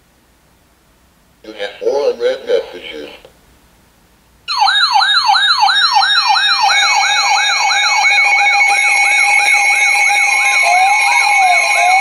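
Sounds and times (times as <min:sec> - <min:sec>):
falling whoop alarm: 0:04.5 - 0:12.0
steady alarm tones: 0:04.5 - 0:12.0.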